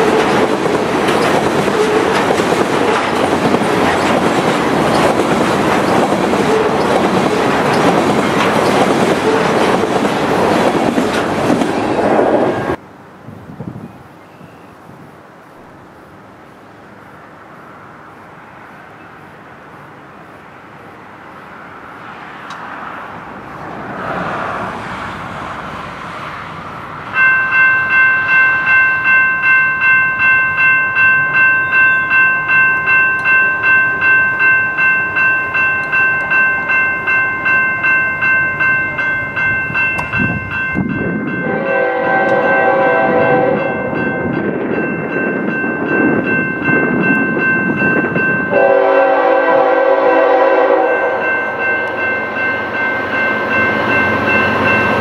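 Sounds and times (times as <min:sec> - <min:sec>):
diesel locomotives rumbling: 0:00.0 - 0:55.0
pulsing train air horn: 0:06.4 - 0:07.7, 0:41.4 - 0:43.9, 0:48.5 - 0:52.0.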